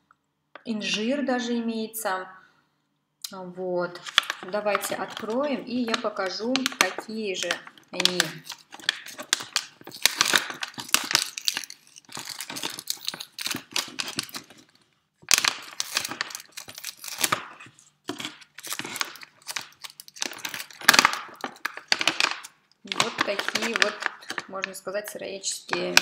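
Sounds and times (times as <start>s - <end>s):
plastic snack pouch crinkling: 4.0s - 26.0s.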